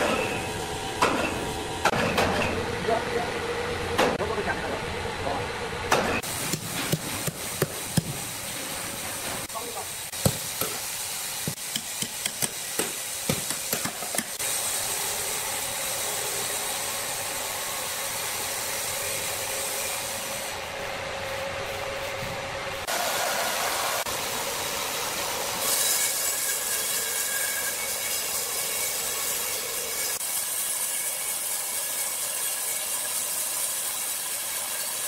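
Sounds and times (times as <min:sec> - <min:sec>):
hissing sawmill machinery: 0:02.5 - 0:35.0
hammer striking metal: 0:10.1 - 0:14.4.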